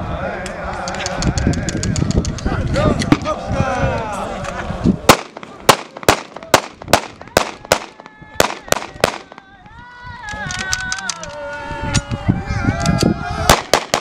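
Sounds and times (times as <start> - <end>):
rifle shots: 5.1 - 9.4, 13.5 - 14.0
people's high-pitched wavering cries: 7.6 - 13.7.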